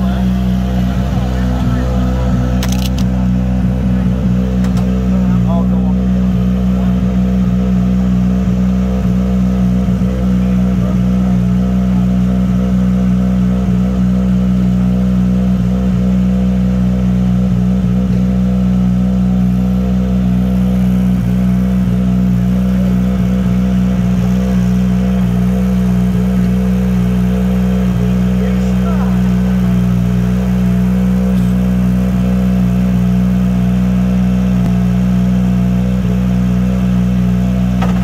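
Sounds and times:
car engine idling: 0.0 - 38.0.

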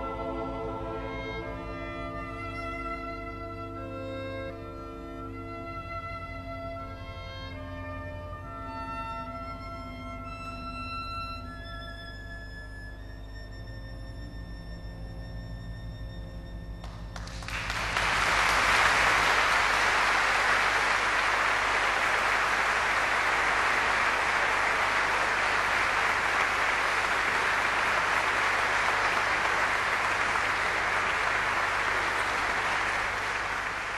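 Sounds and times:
audience applauding: 16.8 - 33.9.

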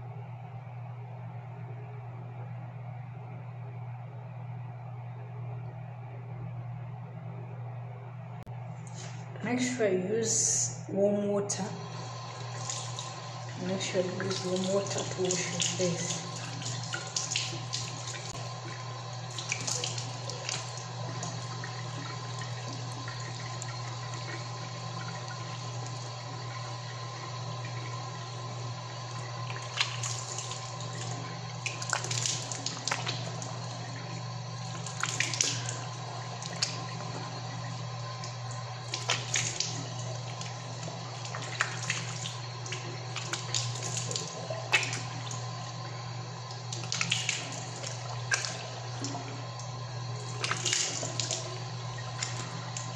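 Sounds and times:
water splashing on face: 11.8 - 28.0, 29.0 - 34.0, 34.6 - 45.7, 46.4 - 52.9
tap water running into sink: 11.8 - 52.9.

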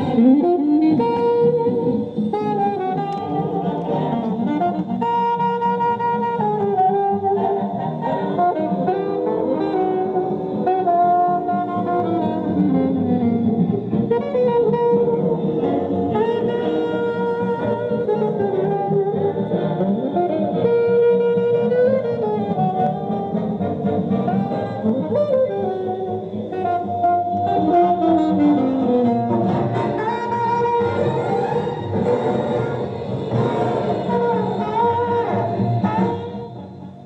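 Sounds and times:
record playing music: 0.0 - 5.1, 7.3 - 10.7, 11.8 - 20.7, 21.7 - 37.0.

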